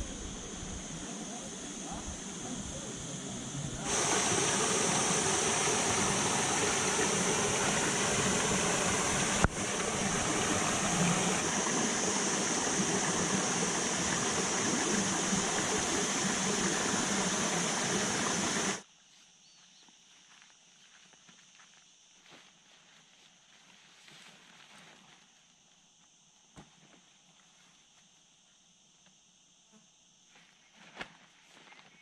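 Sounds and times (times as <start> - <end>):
running water rushing: 3.8 - 18.8.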